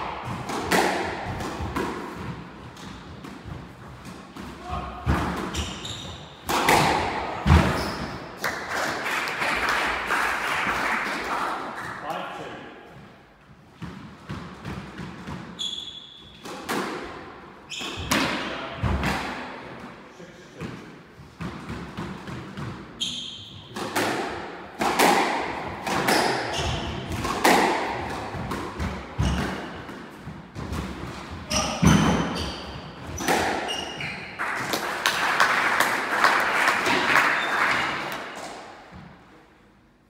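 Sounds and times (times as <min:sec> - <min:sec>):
squash ball cracks and thuds: 0:00.0 - 0:04.4, 0:06.4 - 0:07.9, 0:23.7 - 0:31.1, 0:33.1 - 0:33.7
shoe squeaks on wooden floor: 0:05.5 - 0:06.4, 0:07.7 - 0:08.2, 0:15.6 - 0:16.4, 0:17.7 - 0:18.1, 0:23.0 - 0:23.8, 0:31.5 - 0:34.4
applause: 0:08.4 - 0:11.6, 0:34.4 - 0:38.2.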